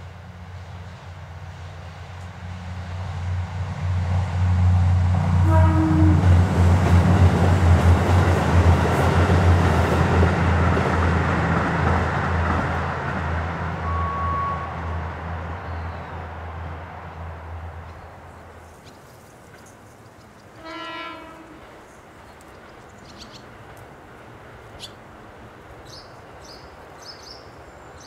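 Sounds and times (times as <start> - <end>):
diesel railcar engine drone: 0.0 - 28.0
train horn toot: 5.3 - 6.4, 13.8 - 14.9, 20.6 - 21.7.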